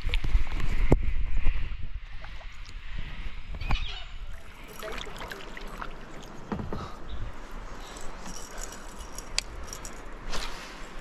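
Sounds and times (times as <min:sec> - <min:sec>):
fishing gear clicks and rattles: 0:04.4 - 0:06.2, 0:07.7 - 0:10.4
soft knock in canoe: 0:06.5 - 0:07.0.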